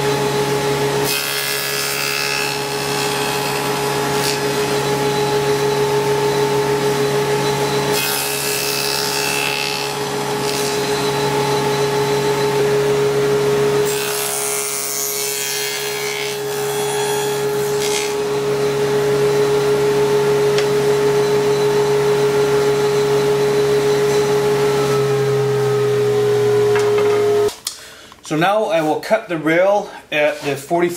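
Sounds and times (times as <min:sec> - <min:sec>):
saw cutting wood: 0:00.0 - 0:19.9
table saw motor humming: 0:00.0 - 0:27.5.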